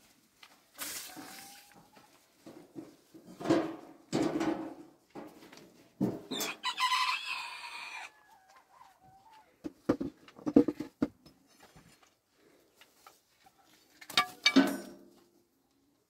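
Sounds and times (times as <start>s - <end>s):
rooster crowing: 6.3s - 9.2s
knocks and thumps: 9.6s - 11.3s.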